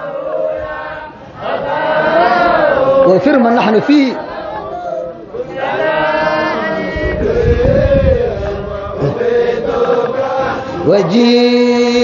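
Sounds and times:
men chanting long held notes: 0.0s - 12.0s.

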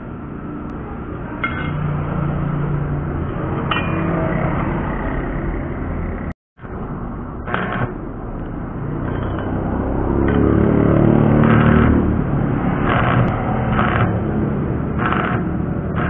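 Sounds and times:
welding arc crackling: 6.6s - 9.5s, 11.1s - 16.0s.

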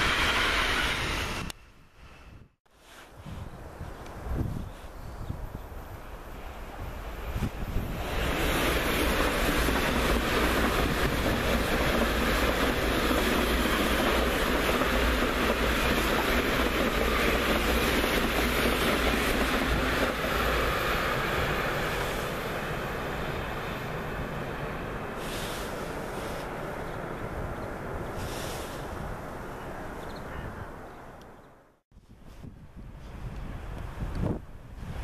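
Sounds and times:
train rushing past on rails: 0.0s - 2.6s, 5.4s - 30.0s.

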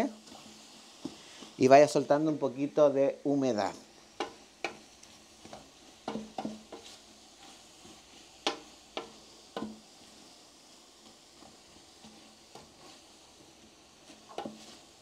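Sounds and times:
faint sizzle: 0.0s - 15.0s
spoon scraping and knocking pot: 5.4s - 7.6s, 14.2s - 14.8s.

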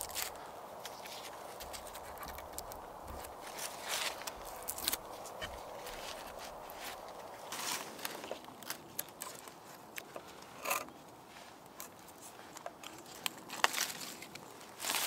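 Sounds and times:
knife scraping bark: 0.0s - 9.8s, 10.4s - 11.0s.

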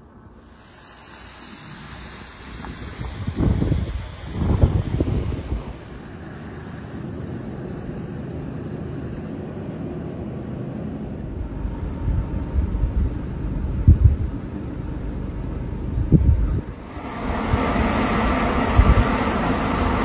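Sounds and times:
wind buffeting microphone: 1.7s - 10.1s, 11.2s - 20.0s.

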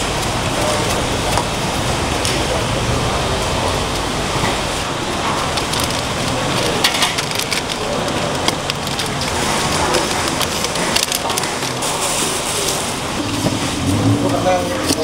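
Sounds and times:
steady background noise: 0.0s - 15.0s
plastic bags crinkling: 5.0s - 13.8s.

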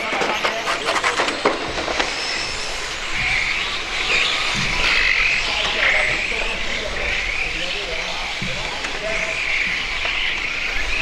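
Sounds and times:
sharp clicks and knocks: 0.0s - 3.3s
toy car motor whine: 0.0s - 6.1s.

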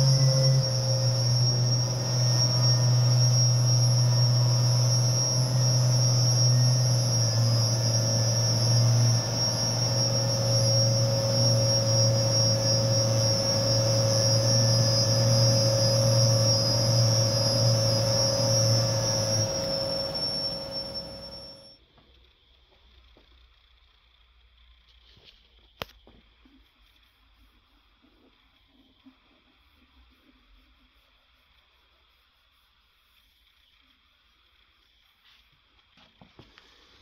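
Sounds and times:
sanding machine whining: 0.0s - 21.7s.

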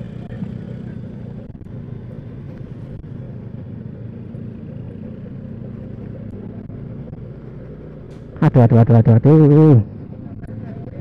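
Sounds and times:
road noise: 0.0s - 11.0s
scooter engine rumble: 0.0s - 11.0s.

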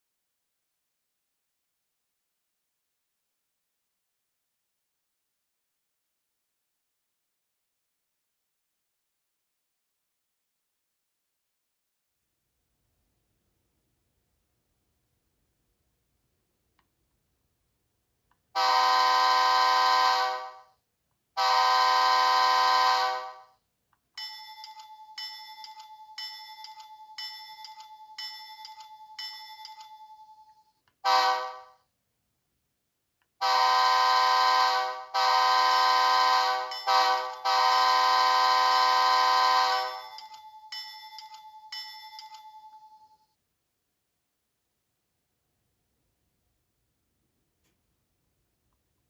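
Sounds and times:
diesel air horn: 18.6s - 20.6s, 21.4s - 23.5s, 31.0s - 31.7s, 33.4s - 40.1s
locomotive bell ringing: 24.2s - 30.7s, 36.4s - 43.2s.

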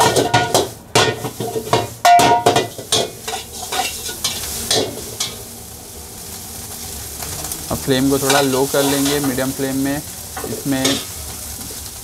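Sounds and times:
metallic clang: 0.0s - 3.5s
metal ladle scraping wok: 0.0s - 5.4s, 8.2s - 9.4s
food sizzling: 0.0s - 12.0s.

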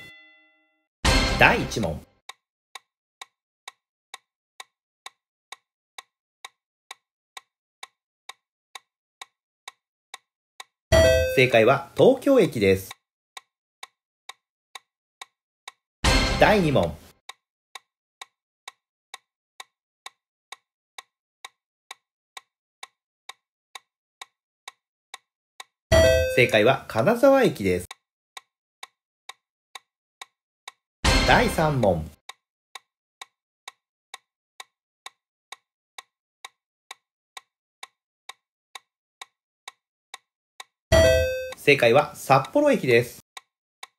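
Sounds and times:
countdown timer ticking: 1.0s - 2.0s, 10.6s - 12.6s, 16.0s - 17.1s, 25.9s - 27.0s, 31.0s - 32.2s, 40.6s - 42.8s
clock-like countdown ticking: 1.1s - 43.9s.

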